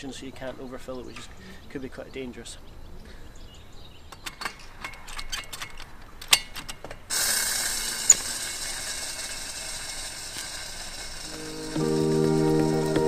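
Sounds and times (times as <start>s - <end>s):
gas hissing into cylinder: 7.1s - 13.0s.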